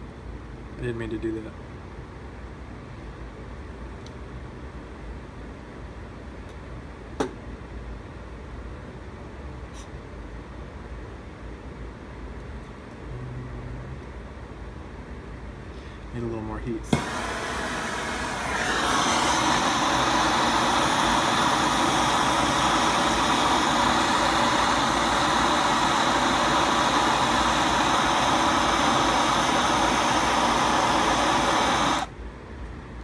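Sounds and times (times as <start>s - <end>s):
torch flame burning: 16.8s - 32.2s.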